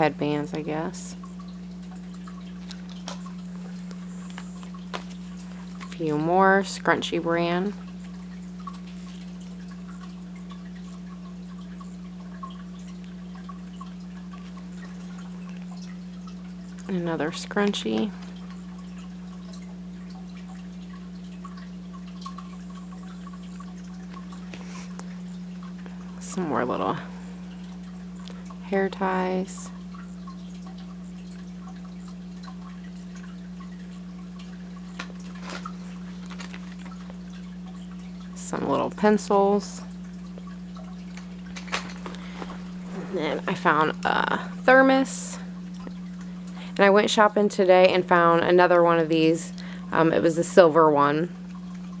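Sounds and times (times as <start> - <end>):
low hum: 0.0 - 52.0
faint little ticks: 28.1 - 28.6
soft packaging rustle: 35.1 - 37.2.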